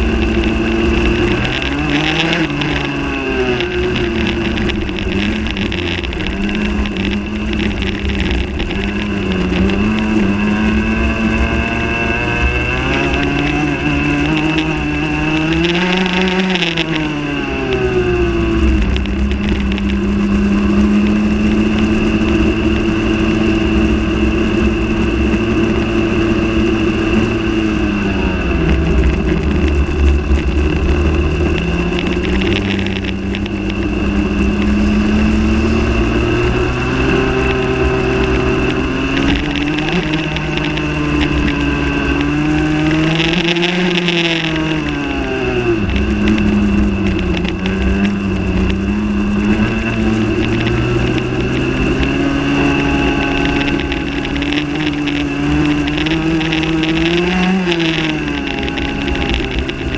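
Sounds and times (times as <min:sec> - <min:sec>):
kart engine revving: 0:00.0 - 0:59.9
steady high whine: 0:00.0 - 0:59.9.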